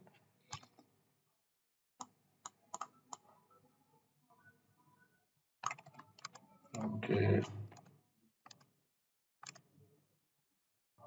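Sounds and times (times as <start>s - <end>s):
keyboard and mouse clicks: 0.5s - 0.9s, 2.0s - 3.3s, 5.6s - 8.7s, 9.4s - 9.7s.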